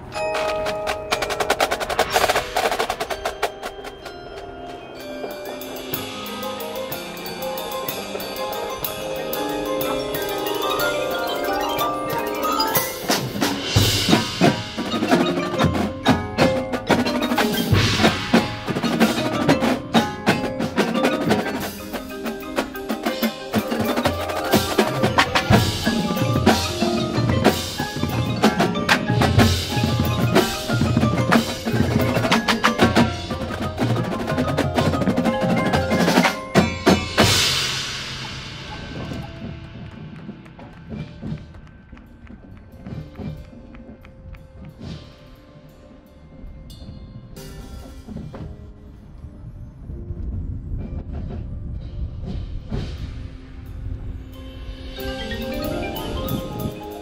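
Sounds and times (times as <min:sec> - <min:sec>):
marimbas and mallet keyboards: 0:00.0 - 0:57.0
snare tenor and bass drums: 0:12.9 - 0:41.6
crashing suspended cymbals: 0:36.4 - 0:40.4.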